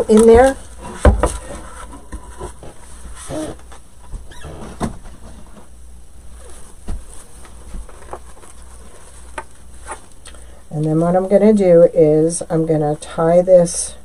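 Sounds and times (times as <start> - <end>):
ribbon and craft materials rustling: 0.0 - 1.2
low steady hum: 0.0 - 14.0.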